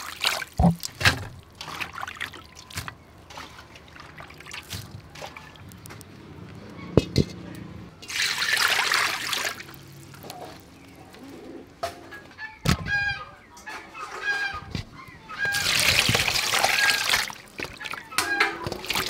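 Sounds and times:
hands washing in water: 0.0s - 5.6s, 8.0s - 10.3s, 15.5s - 19.0s
water poured into a wok: 8.0s - 10.3s
chickens clucking: 10.2s - 18.9s.

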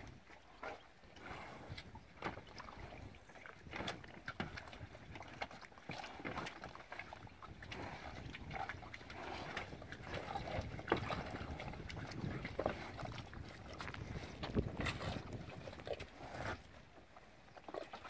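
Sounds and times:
cattle slurping water: 0.0s - 18.0s.

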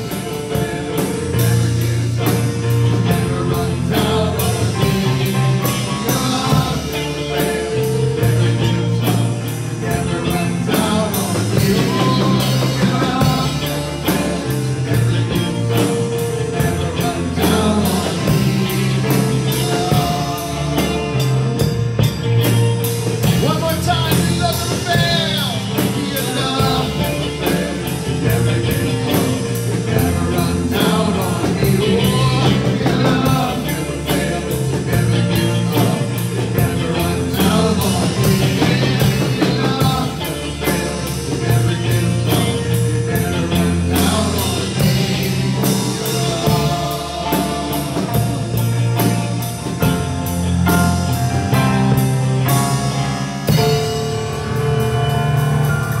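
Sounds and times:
person singing: 0.0s - 21.9s, 23.2s - 50.0s
drum kit beat: 0.0s - 56.0s
rock band playing: 0.0s - 56.0s.

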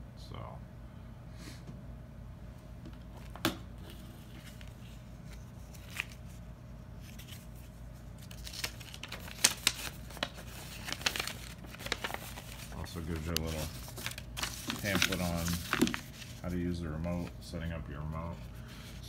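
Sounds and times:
steady low hum: 0.0s - 19.0s
paper rustling: 3.2s - 17.4s.

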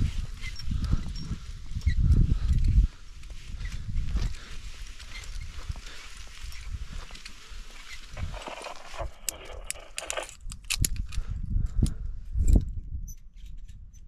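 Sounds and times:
thumps and scuffs of movement: 3.3s - 10.2s
carabiners clinking: 6.4s - 11.2s.

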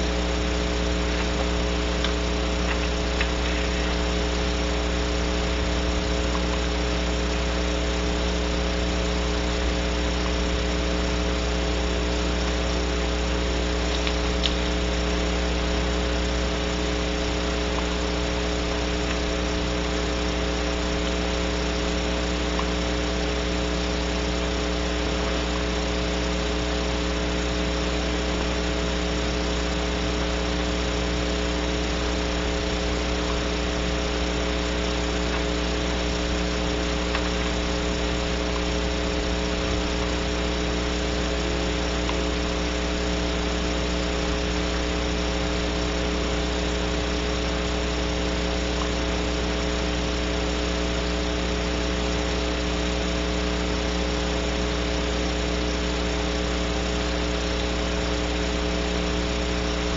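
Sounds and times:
constant hiss: 0.0s - 59.9s
electrical hum: 0.0s - 59.9s.

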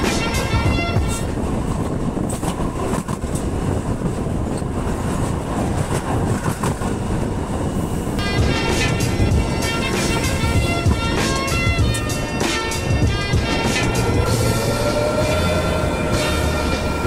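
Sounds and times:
background music: 0.0s - 1.8s, 8.2s - 17.0s
train wheels rumbling over track: 0.0s - 17.0s.

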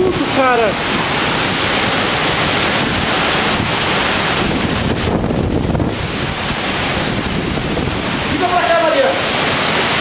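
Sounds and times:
wind buffeting microphone: 0.0s - 8.9s
wind and rain through trees: 0.0s - 10.0s.

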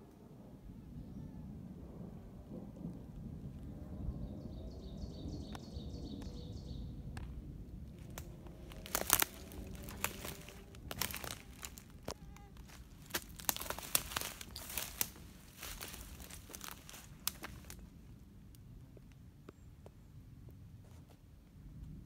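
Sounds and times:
footsteps crunching dry leaves: 7.9s - 17.9s.

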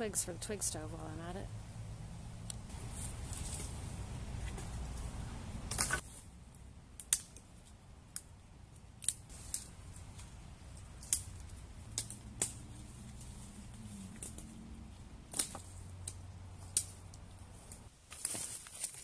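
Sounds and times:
brush rustling: 2.5s - 6.6s, 8.7s - 19.0s
dry twigs snapping: 5.7s - 19.0s.

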